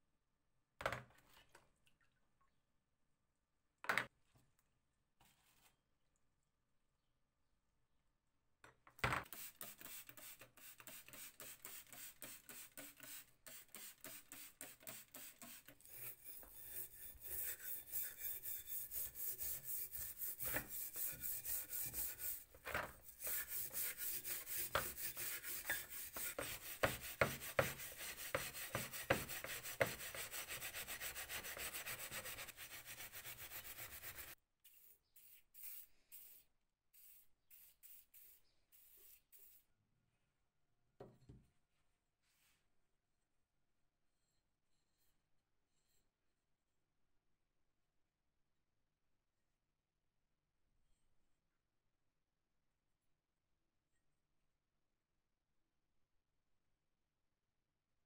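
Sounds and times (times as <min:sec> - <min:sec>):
abrasive pad scrubbing metal: 0:15.4 - 0:34.4.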